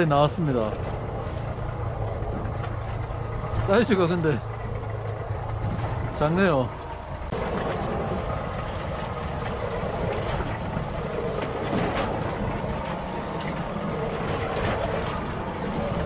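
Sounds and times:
boat machinery droning: 0.0 - 16.0.

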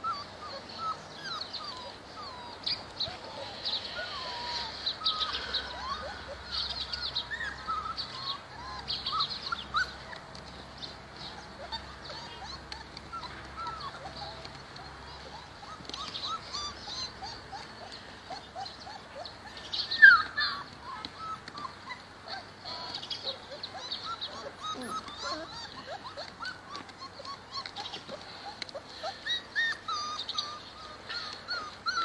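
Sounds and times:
birds chirping: 0.0 - 32.0
puppies whimpering: 0.0 - 32.0.

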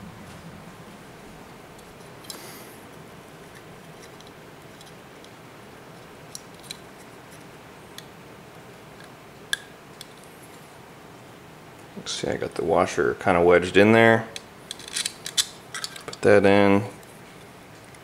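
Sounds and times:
steady background hiss: 0.0 - 18.0
small metal screws clicking: 14.7 - 16.2.

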